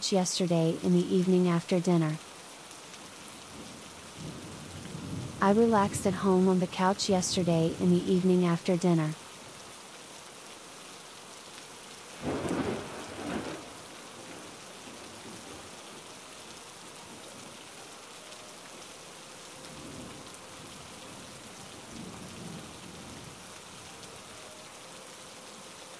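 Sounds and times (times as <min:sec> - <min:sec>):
steady rain: 0:00.0 - 0:25.9
rolling thunder: 0:04.2 - 0:05.4, 0:12.2 - 0:14.5.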